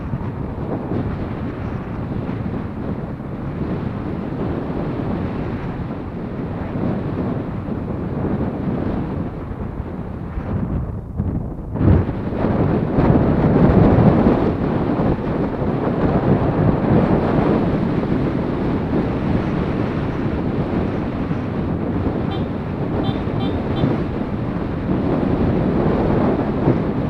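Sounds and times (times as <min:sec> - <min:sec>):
wind on microphone: 0:00.0 - 0:27.0
motorcycle engine cruising: 0:12.0 - 0:27.0.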